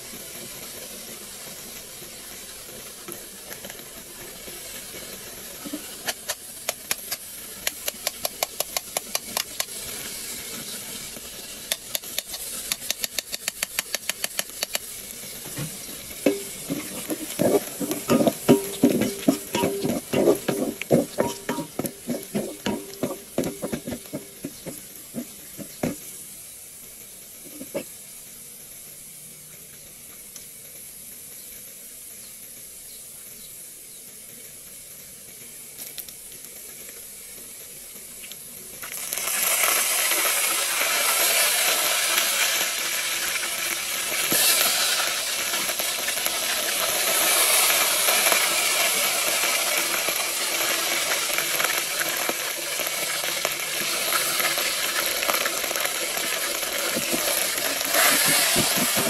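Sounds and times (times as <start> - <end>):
frying sizzle: 0.0 - 59.0
steady hiss: 0.0 - 59.0
stirring scrapes in pot: 16.3 - 26.0.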